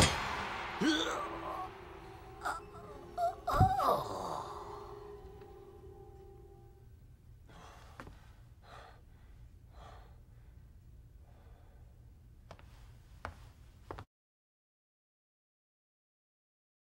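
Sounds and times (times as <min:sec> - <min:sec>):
man's strangled cry: 0:00.8 - 0:01.8, 0:02.4 - 0:05.4
man breathing heavily: 0:07.5 - 0:12.2.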